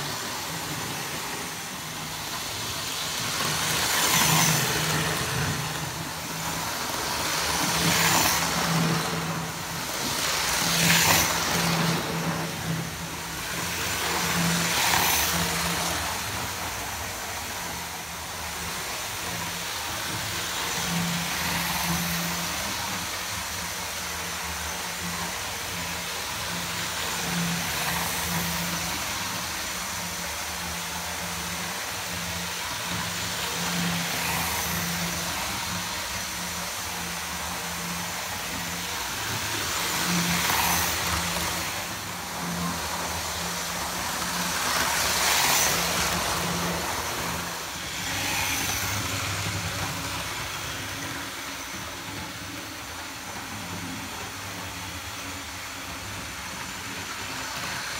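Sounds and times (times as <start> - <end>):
model train motor hum: 0.0 - 57.9.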